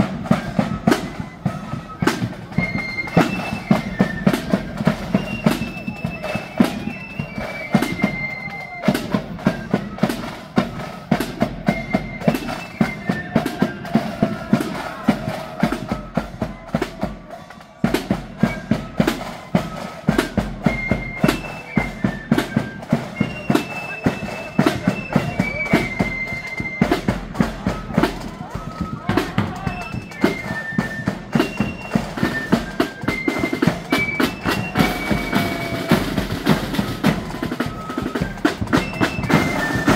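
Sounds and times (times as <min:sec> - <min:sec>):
flutes playing a tune: 0:00.0 - 0:39.9
side drums and bass drum beat: 0:00.0 - 0:39.9.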